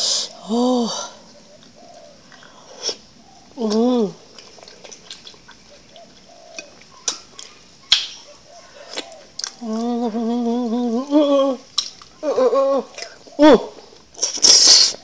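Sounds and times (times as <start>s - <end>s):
closed-mouth humming: 0.0s - 15.0s
wet mouth clicks and smacks: 4.3s - 8.2s, 8.9s - 9.9s, 11.7s - 12.2s.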